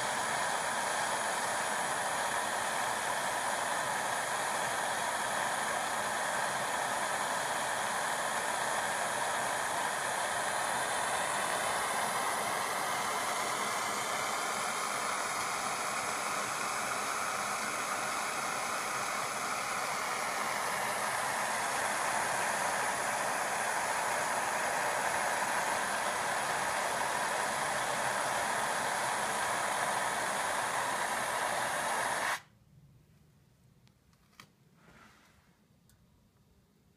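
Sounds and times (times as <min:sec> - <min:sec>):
gas torch flame hissing: 0:00.0 - 0:32.5
faint click: 0:35.8 - 0:36.0.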